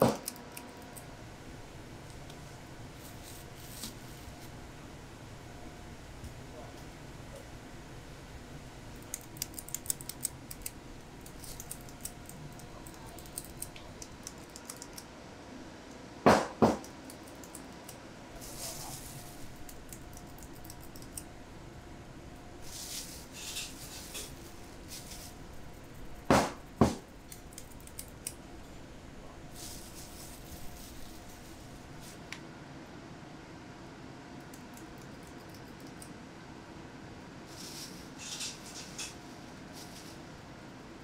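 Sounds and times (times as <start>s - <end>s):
faint steady hum: 0.0s - 41.0s
sharp loud knocks: 16.3s - 16.8s, 26.3s - 27.0s.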